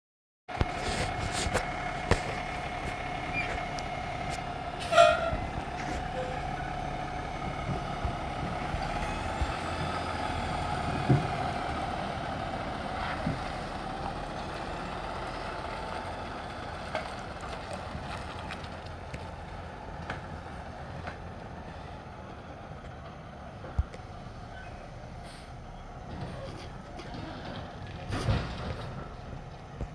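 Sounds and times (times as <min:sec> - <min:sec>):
garbage truck diesel engine: 0:00.5 - 0:29.9
brief squeal: 0:03.3 - 0:03.6, 0:04.8 - 0:05.4, 0:24.5 - 0:25.5.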